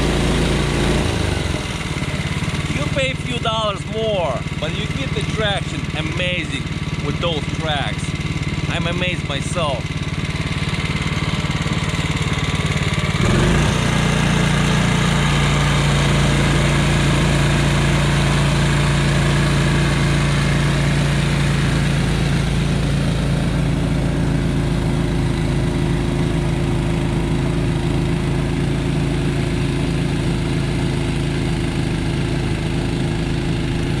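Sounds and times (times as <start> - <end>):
clearing slushy snow: 0.0 - 22.8, 33.2 - 34.0
snowblower engine running: 0.0 - 34.0.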